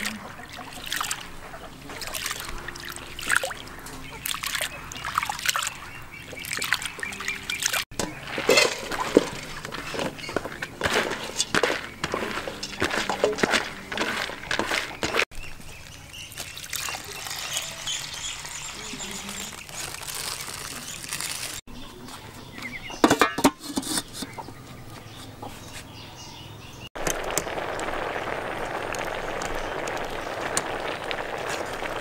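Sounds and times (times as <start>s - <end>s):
beans tumbling into metal pot: 8.0s - 15.3s
water pouring into pot: 16.6s - 18.9s, 27.0s - 32.0s.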